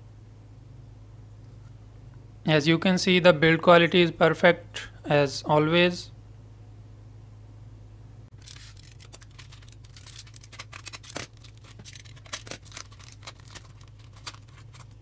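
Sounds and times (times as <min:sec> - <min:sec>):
steady low hum: 0:00.0 - 0:15.0
bubble wrap crinkling: 0:08.3 - 0:15.0.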